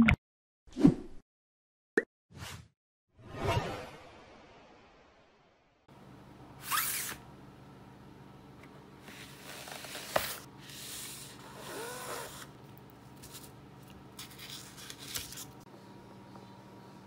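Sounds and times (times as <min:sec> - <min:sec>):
cardboard packaging sliding and rubbing: 0:09.1 - 0:11.4.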